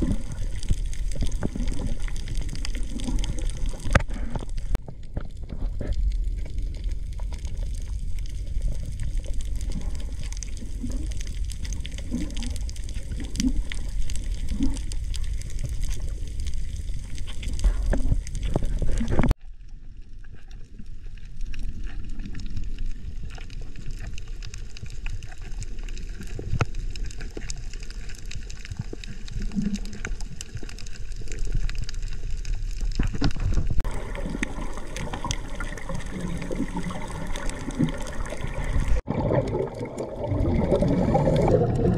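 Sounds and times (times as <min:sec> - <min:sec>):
clicks and crackles: 0:00.0 - 0:41.9
low gurgles: 0:00.0 - 0:41.9
underwater rumble: 0:00.0 - 0:41.9.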